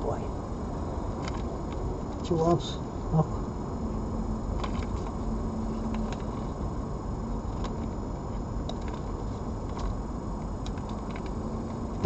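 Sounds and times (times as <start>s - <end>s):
faint hum: 0.0s - 12.0s
low background rumble and hiss: 0.0s - 12.0s.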